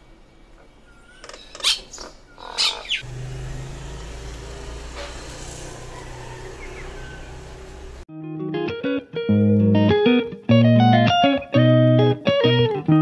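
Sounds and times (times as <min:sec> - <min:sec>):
faint bird chirps: 0:00.6 - 0:03.0
myna harsh calls: 0:01.5 - 0:03.0.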